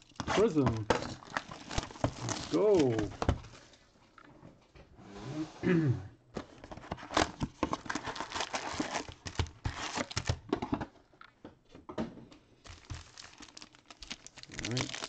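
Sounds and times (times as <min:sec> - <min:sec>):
foil wrappers crinkling: 0:00.0 - 0:03.6, 0:07.6 - 0:10.5, 0:12.6 - 0:15.0
cardboard rustling: 0:00.0 - 0:03.8, 0:06.4 - 0:10.8, 0:12.6 - 0:15.0.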